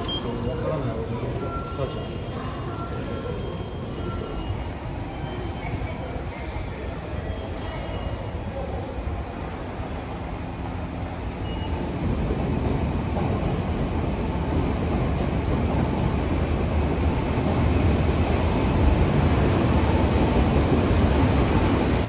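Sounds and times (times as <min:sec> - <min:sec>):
electric train rumbling into station: 0:00.0 - 0:22.0.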